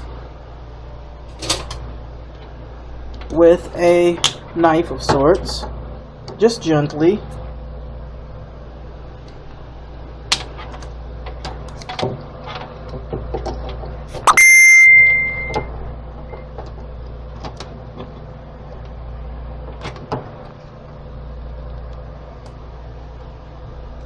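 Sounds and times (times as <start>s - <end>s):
steady low hum: 0.0s - 24.0s
high steady beep: 14.3s - 15.7s.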